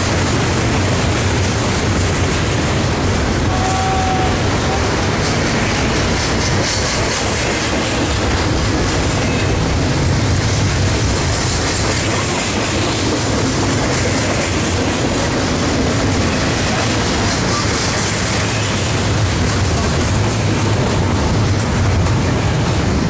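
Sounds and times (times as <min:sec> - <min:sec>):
freight train passing: 0:00.0 - 0:23.0.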